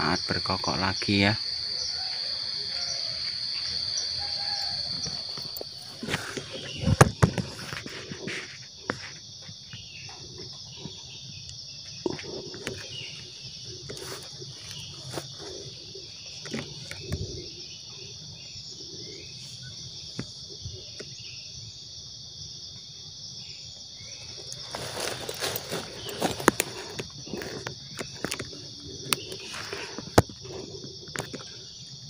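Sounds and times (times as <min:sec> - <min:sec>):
forest insects chorus: 0:00.0 - 0:32.0
handling knocks and rustles: 0:24.3 - 0:31.5.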